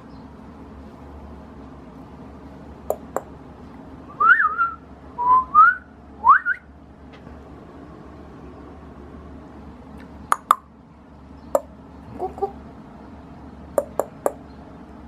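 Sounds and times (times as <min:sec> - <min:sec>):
low room hum and hiss: 0:00.0 - 0:15.0
person whistling rising notes: 0:04.2 - 0:06.6
sharp clicks: 0:10.0 - 0:10.6.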